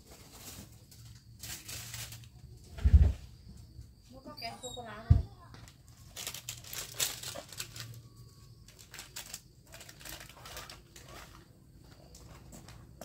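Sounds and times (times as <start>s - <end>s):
plastic bag crinkling: 0.0s - 2.4s, 5.7s - 12.7s.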